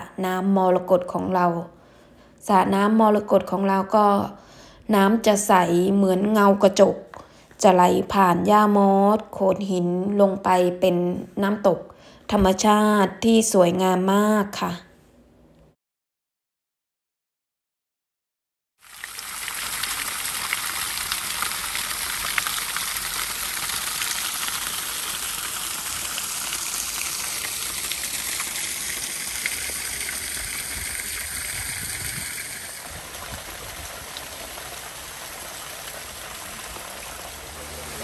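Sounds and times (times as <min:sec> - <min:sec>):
water rushing down stone channel: 0:18.8 - 0:38.0.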